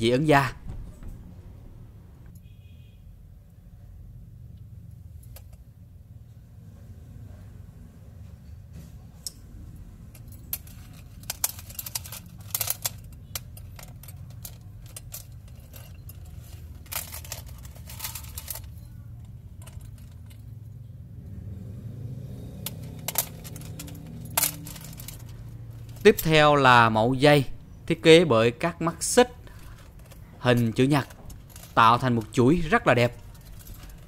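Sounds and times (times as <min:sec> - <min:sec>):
low steady hum: 0:00.0 - 0:02.4
chain necklaces clinking: 0:10.1 - 0:20.4, 0:22.6 - 0:26.4, 0:29.5 - 0:34.0.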